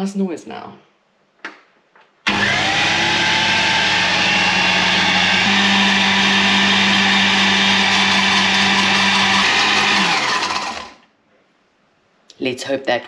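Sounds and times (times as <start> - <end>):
blender motor whirring: 2.3 - 11.0.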